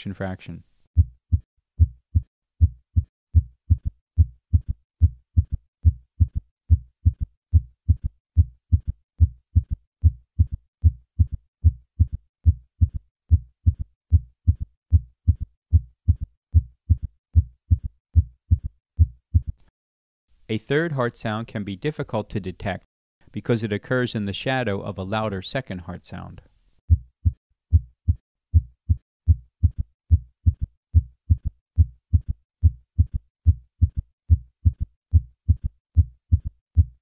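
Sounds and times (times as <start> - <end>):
heartbeat gallop rhythm: 1.0 - 19.6, 26.9 - 37.0.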